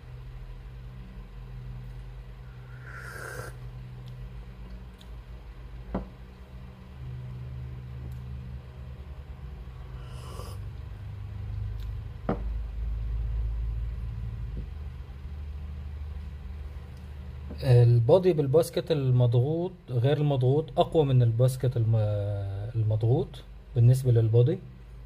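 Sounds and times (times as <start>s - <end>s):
steady low hum: 0.0s - 25.0s.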